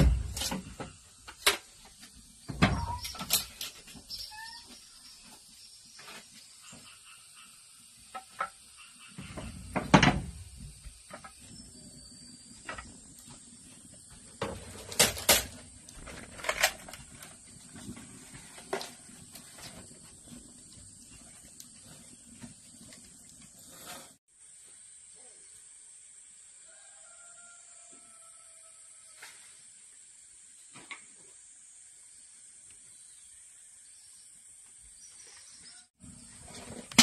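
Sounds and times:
steady high hiss: 23.6 - 34.9.

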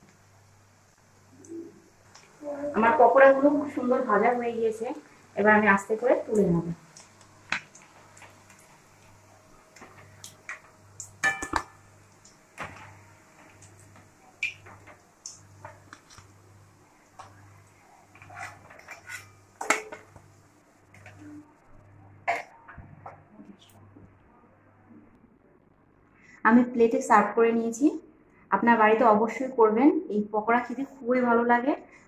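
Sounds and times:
metal spoon scraping a pan: 18.0 - 20.1.

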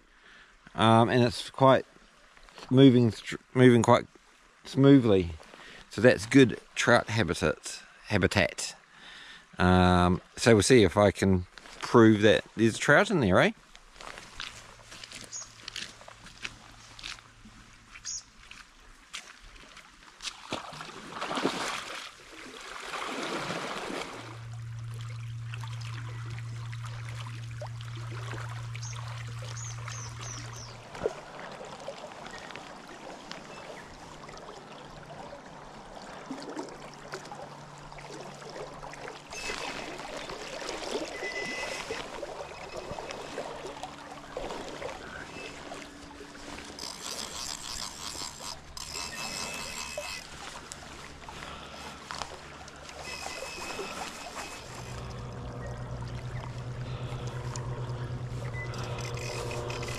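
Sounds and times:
river water running: 0.0 - 10.9, 13.6 - 59.9
steady low hum: 23.5 - 32.4, 35.0 - 59.9
fly reel clicking: 46.4 - 50.8, 52.9 - 59.9.

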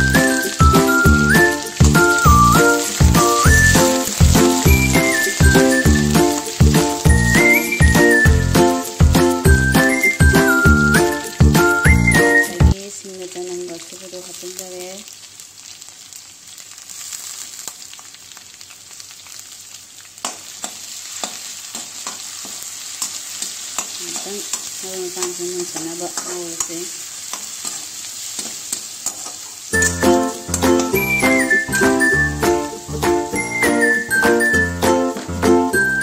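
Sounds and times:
oil sizzling in a pan: 0.0 - 36.0
metal spatula scraping pan: 27.3 - 30.7.

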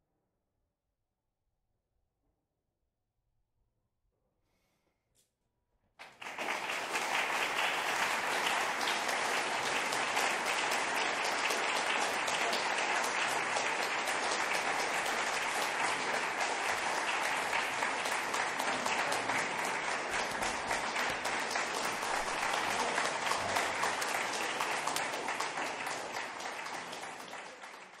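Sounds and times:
audience applauding: 6.0 - 28.0.

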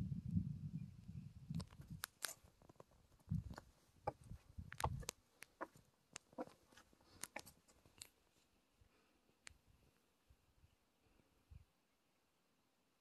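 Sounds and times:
footsteps on boulders: 2.2 - 8.0.

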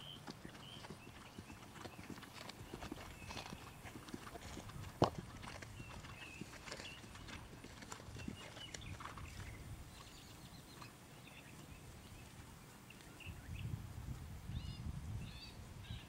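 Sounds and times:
horse hoofbeats trotting: 0.0 - 11.8.

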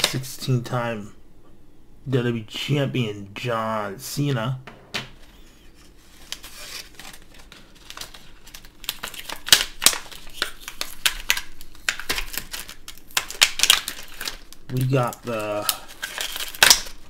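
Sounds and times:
plastic packaging crinkling: 5.2 - 17.0.

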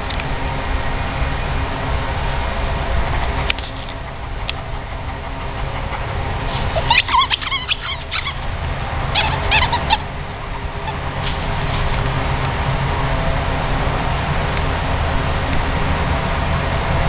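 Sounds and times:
steady low rumble: 0.0 - 17.0
rubber dog toy squeaking: 6.5 - 8.5, 9.1 - 10.0.

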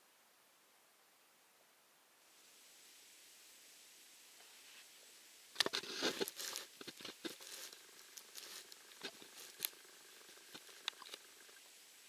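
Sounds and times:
close rustling and crackling: 4.4 - 11.6
sharp clicks: 5.6 - 11.3.

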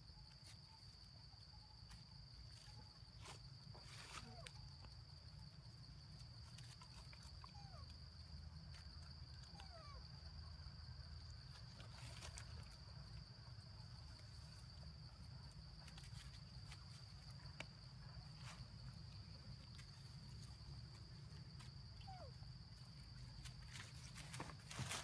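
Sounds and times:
rustles of dry leaf litter: 23.4 - 25.0.

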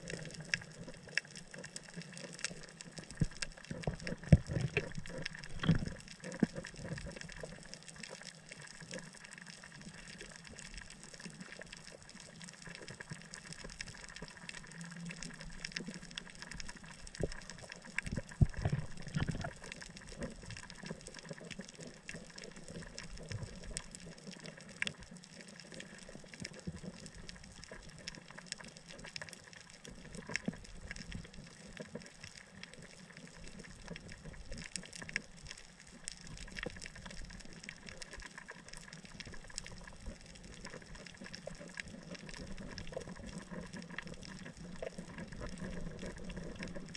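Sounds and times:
faint crackling clicks: 0.0 - 46.9
low underwater thumps: 3.2 - 5.9.

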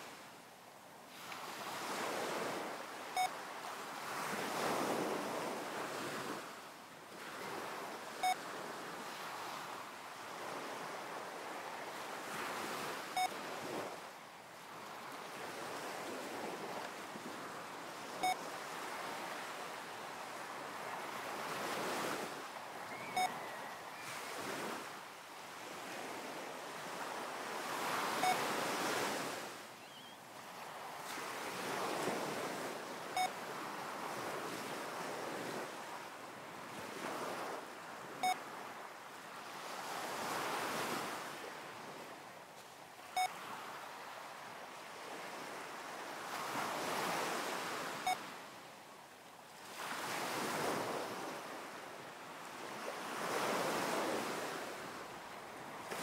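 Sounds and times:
short electronic beep: 23.1 - 23.4, 28.2 - 28.4.

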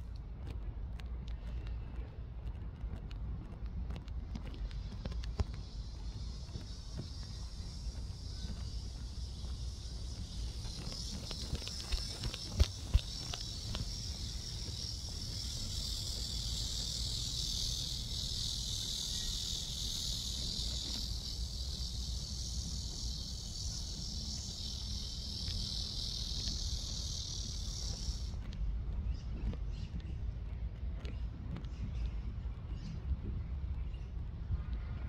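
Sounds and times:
cicadas buzzing: 4.0 - 30.2.

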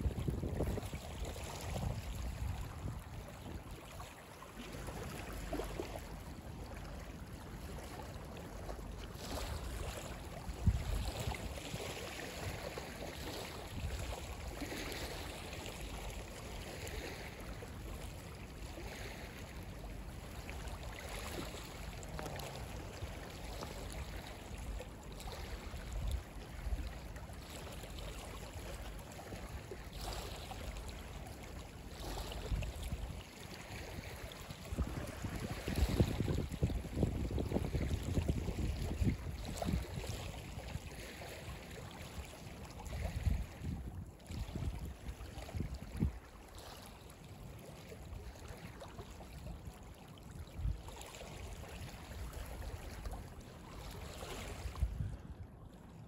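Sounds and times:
wind buffeting microphone: 0.0 - 3.7, 10.5 - 12.6, 34.7 - 40.8, 42.9 - 46.2, 54.4 - 55.4
waves lapping over pebbles: 0.0 - 55.2.

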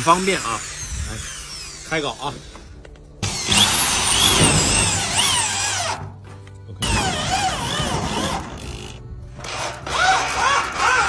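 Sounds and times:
electric drill running: 0.0 - 6.0.

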